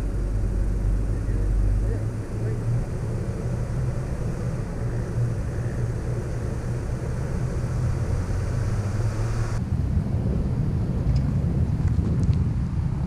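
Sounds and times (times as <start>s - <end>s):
car engine running: 0.0s - 9.6s
wind and tyre hiss: 0.0s - 13.0s.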